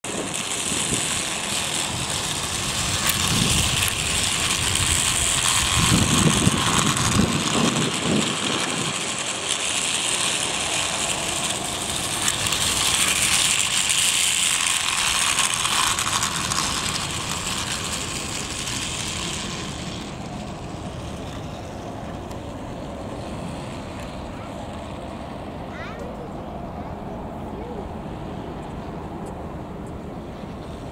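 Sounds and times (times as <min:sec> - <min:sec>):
toy train motor whirring: 0:00.0 - 0:28.2.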